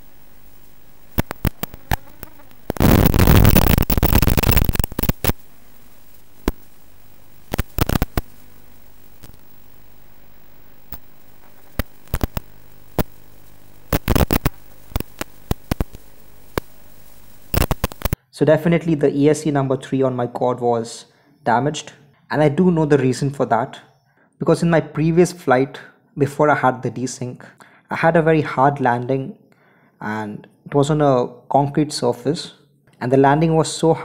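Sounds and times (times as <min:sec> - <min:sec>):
sharp static crackles: 0:00.0 - 0:18.2
static hiss: 0:00.0 - 0:18.2.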